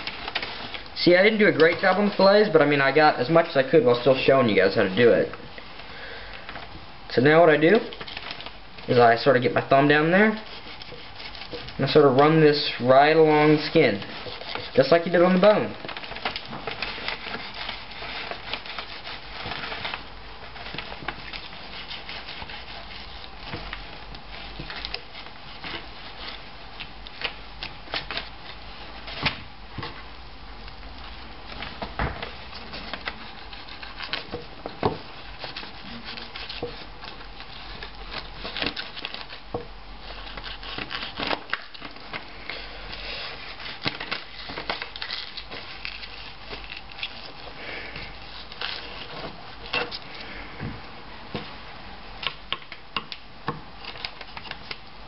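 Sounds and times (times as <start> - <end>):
knife scraping on cutting board: 10.4 - 11.8.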